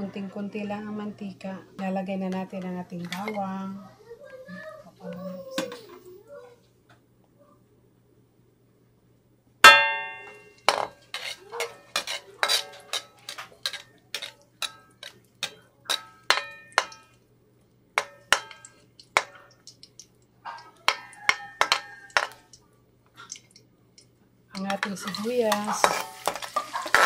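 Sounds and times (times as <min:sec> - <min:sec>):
metal ladle scraping wok: 0:10.0 - 0:17.1, 0:24.6 - 0:27.0.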